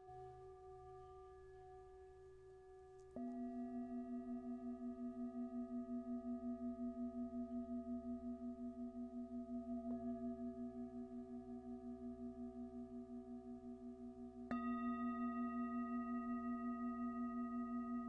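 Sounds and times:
metal singing bowl ringing: 14.5s - 18.0s.

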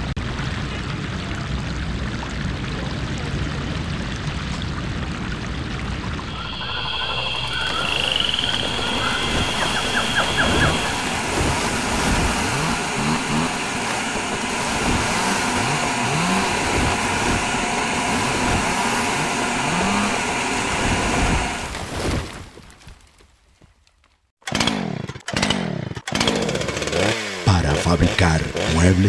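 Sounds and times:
motor engine revving: 6.2s - 21.7s, 24.5s - 29.0s.

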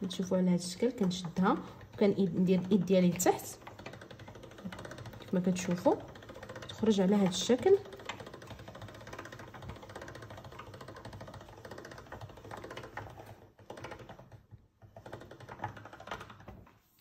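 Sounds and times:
pasta machine gears clicking: 0.0s - 16.5s.

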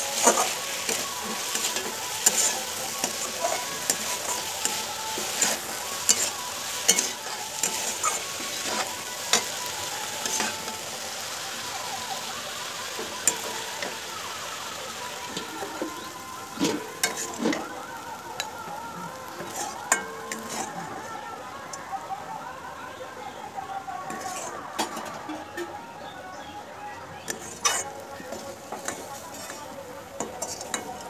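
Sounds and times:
metal spatula scraping a pan: 0.0s - 10.8s, 16.6s - 17.7s, 19.4s - 20.9s, 24.1s - 25.5s, 27.3s - 31.0s
vegetables sizzling in a pan: 0.0s - 31.0s.

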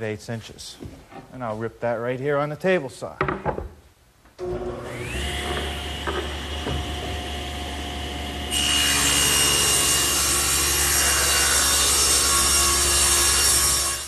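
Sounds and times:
table saw running: 4.4s - 14.0s
saw blade cutting wood: 4.8s - 14.0s.

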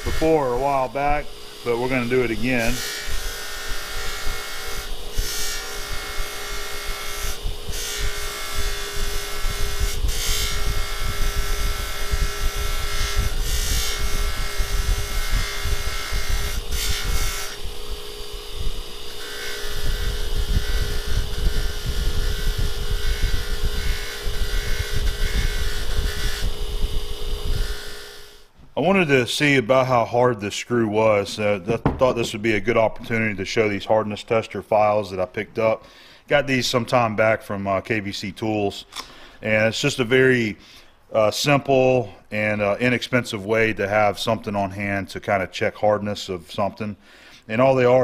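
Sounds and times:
polishing wheel whining: 0.0s - 28.8s.

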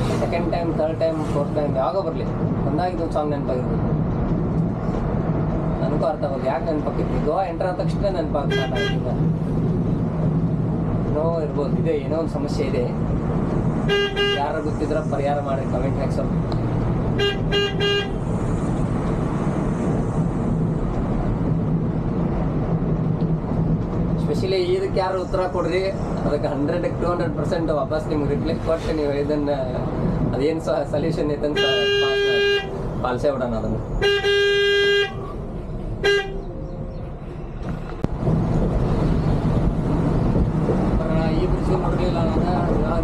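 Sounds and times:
diesel engine drone: 0.0s - 43.0s
road noise: 0.0s - 43.0s
coach horn honking: 8.5s - 9.0s, 13.9s - 14.4s, 17.2s - 18.2s, 31.6s - 32.8s, 34.0s - 35.3s, 36.0s - 36.5s.

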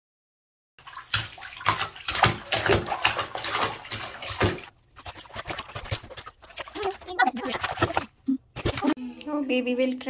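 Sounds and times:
child splashing bathwater: 0.8s - 9.0s.

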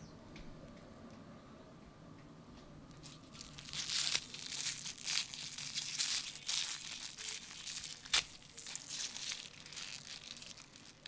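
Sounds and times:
foil wrapper crinkling: 2.9s - 11.0s.

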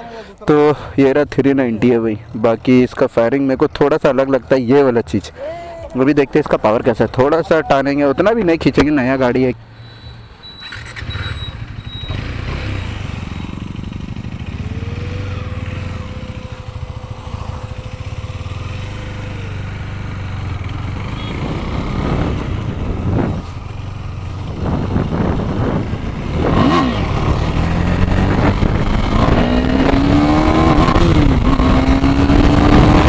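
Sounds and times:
motorcycle engine running: 11.0s - 33.0s.

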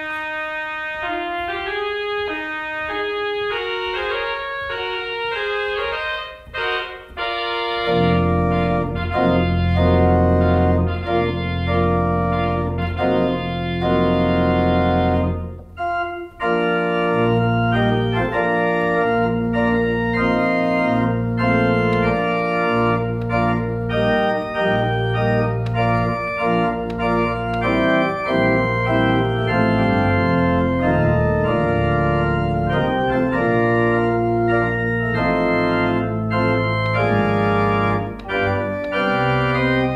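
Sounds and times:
organ pedal bass notes: 0.0s - 39.9s
pipe organ chords: 0.0s - 39.9s.

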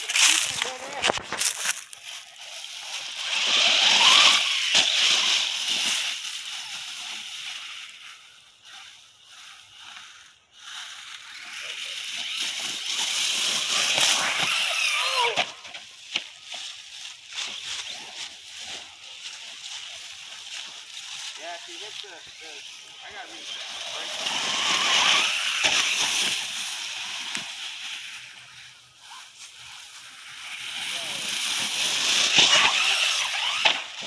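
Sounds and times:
tyres hissing over leaves: 0.0s - 34.0s
electric toy truck motor whine: 2.4s - 7.9s, 9.8s - 16.7s, 22.3s - 34.0s.

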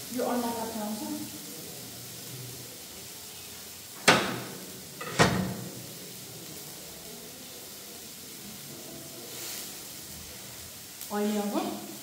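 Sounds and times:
faint steady hiss: 0.0s - 12.0s
sharp knock of kitchenware: 4.1s - 5.6s.

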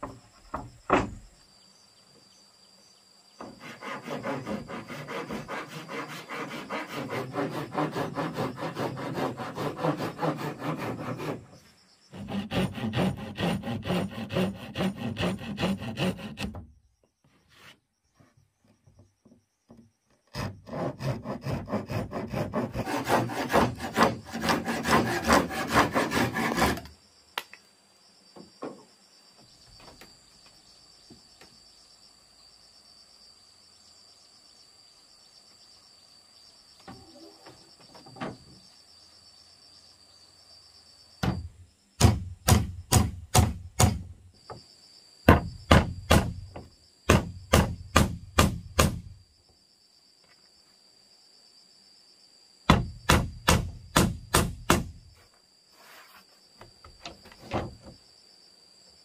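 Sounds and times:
insects chirring: 0.0s - 59.0s
hand saw cutting board: 3.4s - 16.6s, 20.3s - 26.9s
hammer driving nails into wood: 42.0s - 44.1s, 45.3s - 46.4s, 47.1s - 49.1s, 52.7s - 55.0s.

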